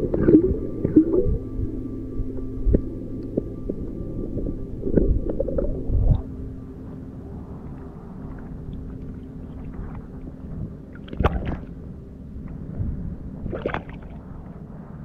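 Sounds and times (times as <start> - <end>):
faint low hum: 0.0 - 15.0
water sloshing and splashing: 7.6 - 14.7.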